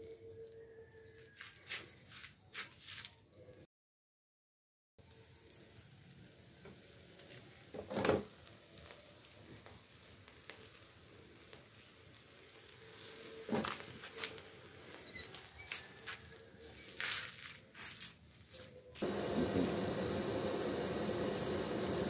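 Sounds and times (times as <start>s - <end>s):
molten metal sizzling and hissing: 5.0s - 22.0s.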